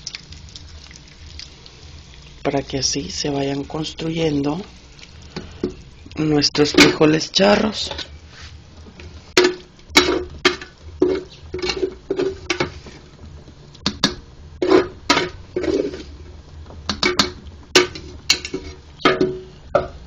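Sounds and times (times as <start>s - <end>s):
utensil knocking metal pot: 9.4s - 12.8s, 13.8s - 15.8s, 16.9s - 20.0s.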